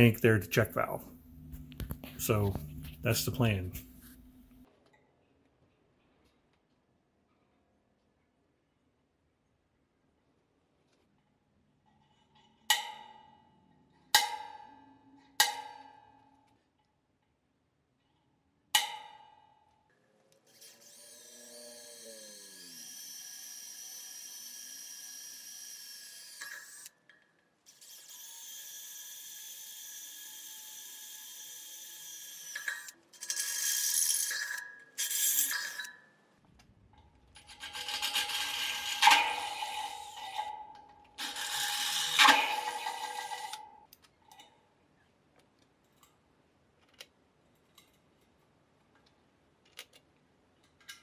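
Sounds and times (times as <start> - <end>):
cordless drill grinding into metal: 37.4 - 40.5, 41.2 - 43.6.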